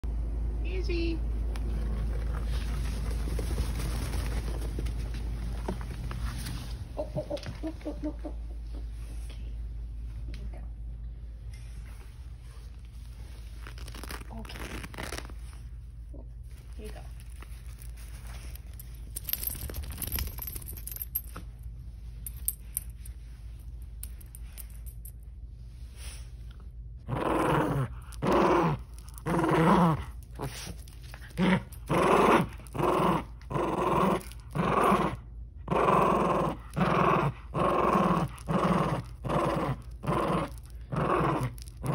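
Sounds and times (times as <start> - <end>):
handling sounds: 16.5 - 25.2
small dog growling: 27.1 - 41.9.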